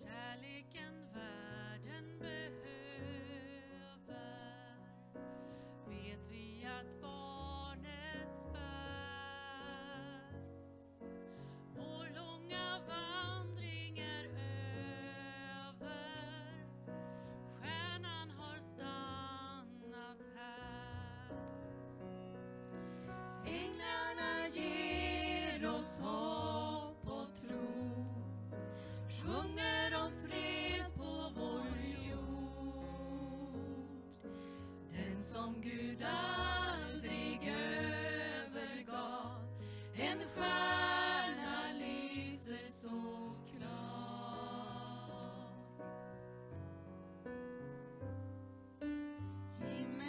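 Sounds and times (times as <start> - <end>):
women singing in harmony: 0.0 - 4.9, 11.8 - 16.6, 23.4 - 45.8, 49.6 - 50.0
keyboard sustained low notes: 12.0 - 42.2.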